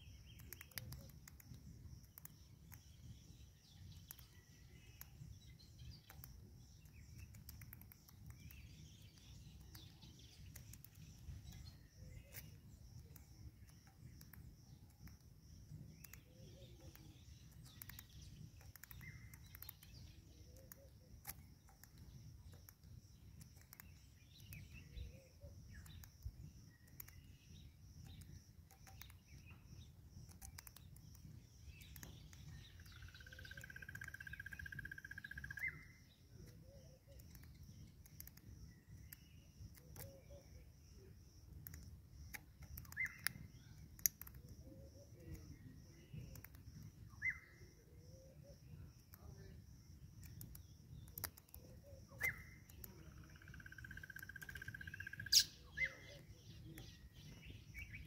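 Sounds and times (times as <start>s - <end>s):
bird pecking seed on stone: 0.0s - 47.3s, 49.0s - 55.5s
faint bird chirps: 0.0s - 58.0s
rapid trilled bird call: 32.7s - 35.9s, 52.1s - 56.3s.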